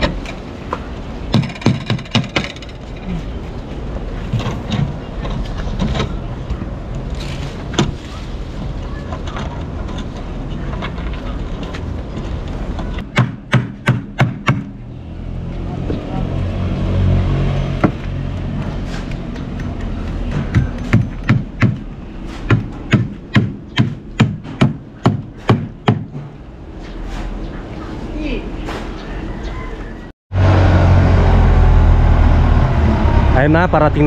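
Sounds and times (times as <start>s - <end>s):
sharp knocks: 1.3s - 2.7s, 17.8s - 26.4s
low engine rumble: 27.4s - 34.0s.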